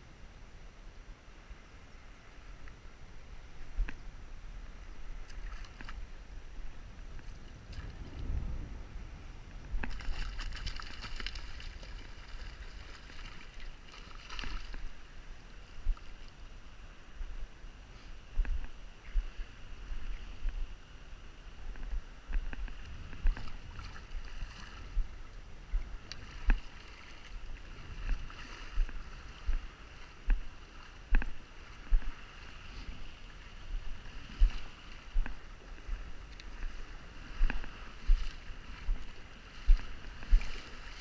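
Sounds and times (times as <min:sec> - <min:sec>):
shallow water sloshing and splashing: 0:05.2 - 0:06.1, 0:09.8 - 0:15.1, 0:22.6 - 0:25.1, 0:25.8 - 0:41.0.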